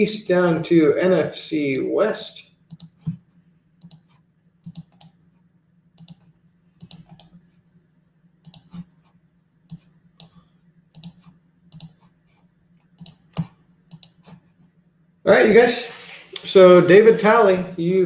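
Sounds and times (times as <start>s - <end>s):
faint steady low hum: 0.0s - 18.0s
mouse and keyboard clicking: 2.7s - 3.1s, 3.8s - 5.2s, 6.0s - 6.2s, 6.8s - 7.4s, 8.4s - 8.9s, 9.7s - 12.1s, 12.8s - 14.4s.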